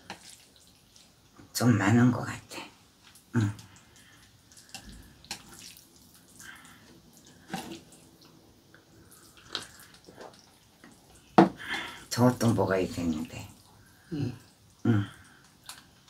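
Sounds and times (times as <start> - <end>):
wet slurping and chewing: 9.0 - 10.6.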